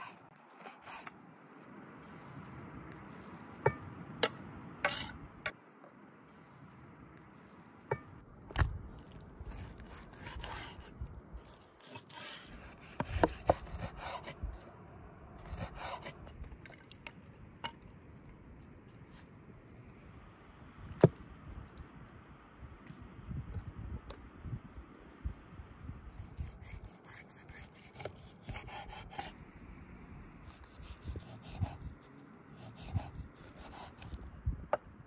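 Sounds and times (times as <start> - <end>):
knife scraping cutting board: 4.2 - 5.2, 9.4 - 14.4, 15.4 - 16.2.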